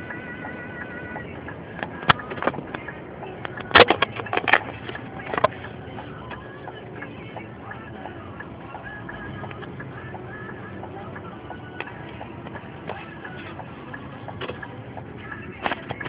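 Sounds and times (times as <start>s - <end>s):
vehicle road and engine noise: 0.0s - 16.0s
sharp clicks and knocks: 1.2s - 8.2s.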